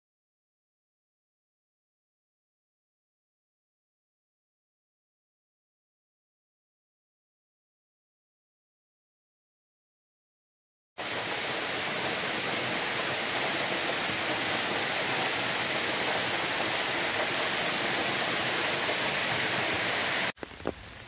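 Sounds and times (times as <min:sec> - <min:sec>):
heavy rain pouring: 0:11.0 - 0:21.0.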